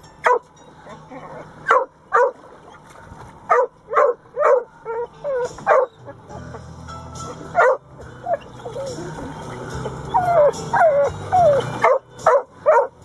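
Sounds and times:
dog barking: 0:00.2 - 0:00.4, 0:01.7 - 0:02.4, 0:03.5 - 0:05.1, 0:05.7 - 0:06.0, 0:07.6 - 0:07.8, 0:11.8 - 0:12.9.

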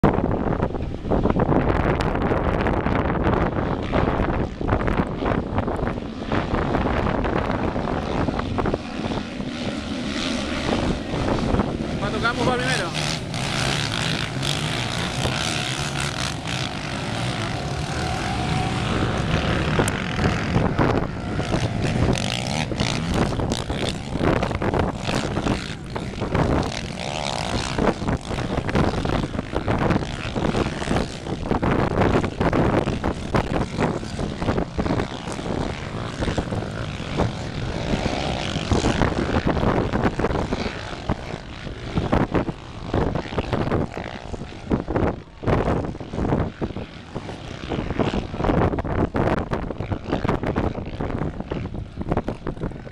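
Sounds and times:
atv engines revving: 0:01.6 - 0:52.9.

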